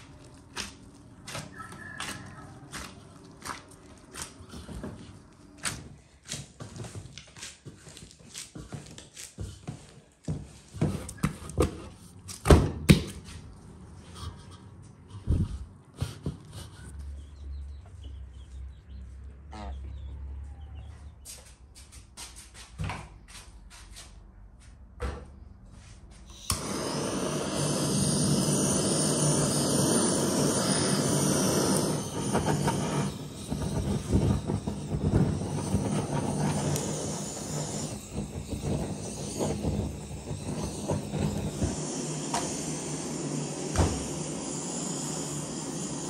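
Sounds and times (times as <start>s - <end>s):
blowtorch hissing: 26.3s - 46.0s.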